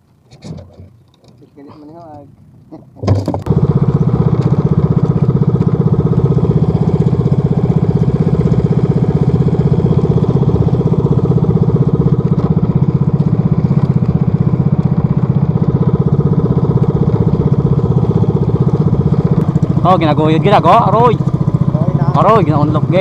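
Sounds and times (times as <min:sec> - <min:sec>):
small boat engine running: 0:00.1 - 0:23.0.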